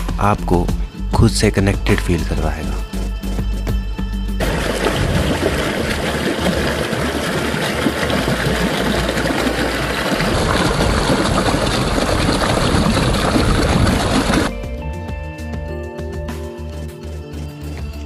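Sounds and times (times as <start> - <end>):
mountain stream rushing over boulders: 4.4 - 14.5.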